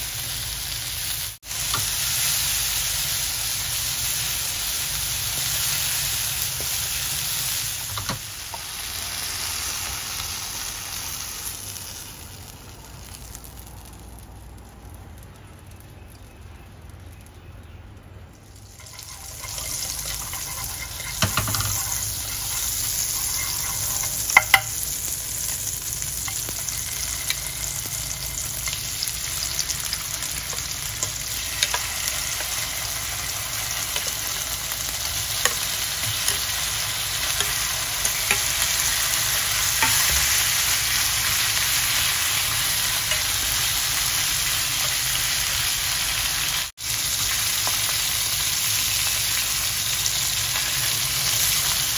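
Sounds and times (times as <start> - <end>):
food sizzling in frying pan: 0.0 - 15.3, 18.4 - 51.9.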